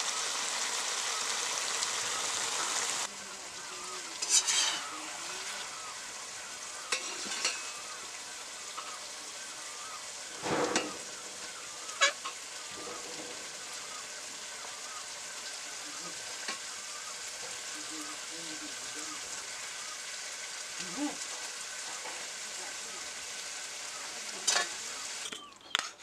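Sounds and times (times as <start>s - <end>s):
steady hiss: 0.0s - 25.3s
spatula scraping and plopping food: 4.2s - 5.7s, 6.6s - 9.0s.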